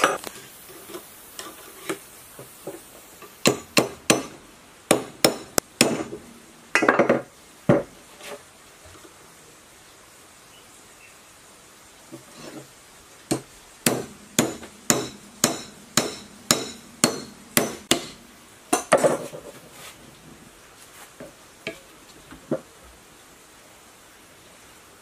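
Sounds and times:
metal pipe knocking on bearing: 13.3 - 19.2.

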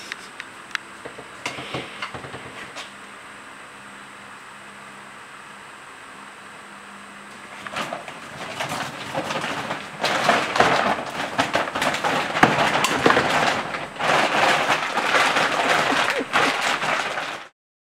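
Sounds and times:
plastic bag crinkling: 7.4 - 17.5.

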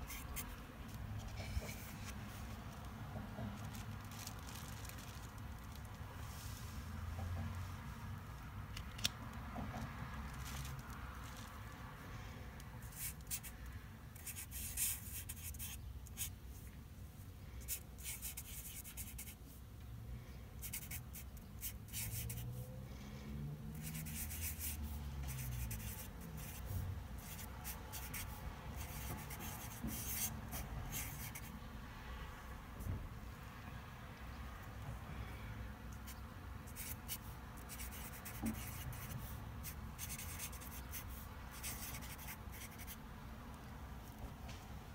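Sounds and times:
marker scratching on paper: 0.0 - 2.2, 12.8 - 13.6, 14.2 - 16.4, 17.7 - 19.4, 20.6 - 22.5, 23.8 - 31.6, 36.0 - 43.0.

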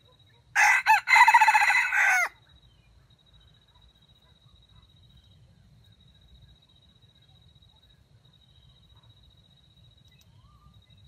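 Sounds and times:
rooster crowing: 0.6 - 2.4.

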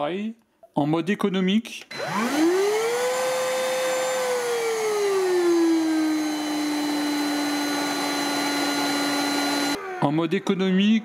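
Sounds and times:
vacuum cleaner motor whine: 1.9 - 10.1.

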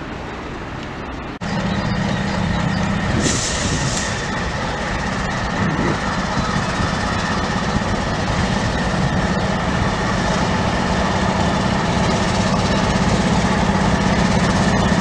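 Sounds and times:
diesel locomotive engine droning: 0.0 - 15.0.

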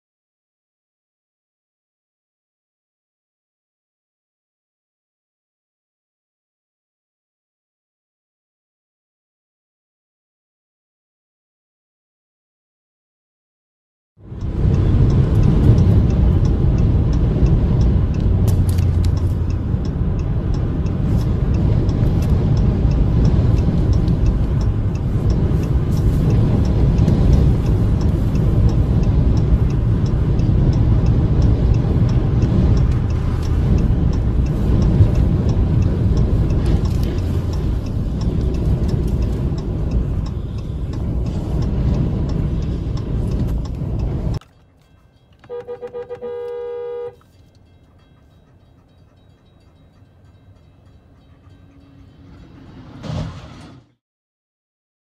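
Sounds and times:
road rumble: 14.2 - 54.0
wind buffeting microphone: 14.3 - 44.4.

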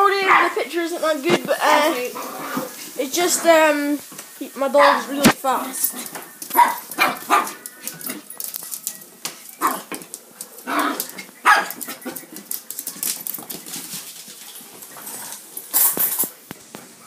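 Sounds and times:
small dog barking: 0.2 - 0.6, 4.8 - 5.1, 6.5 - 7.6, 10.6 - 12.0.

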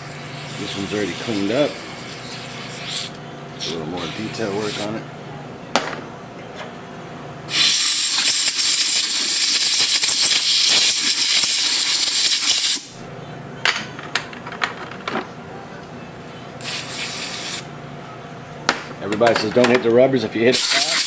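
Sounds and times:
compressed air gun hissing: 1.3 - 3.2, 7.5 - 12.9, 16.6 - 17.7, 20.5 - 21.0
spray can hiss: 2.0 - 3.1, 7.5 - 12.9, 16.6 - 17.7, 20.5 - 21.0.

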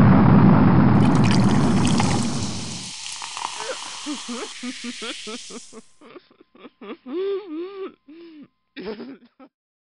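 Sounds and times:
woman pitch-bending vocal sounds: 3.5 - 6.0
woman laughing syllables: 3.6 - 9.5.

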